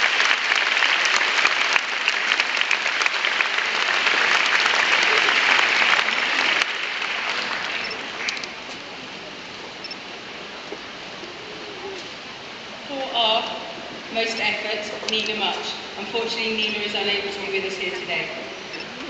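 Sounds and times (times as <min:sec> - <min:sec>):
audience applause: 0:00.0 - 0:08.6.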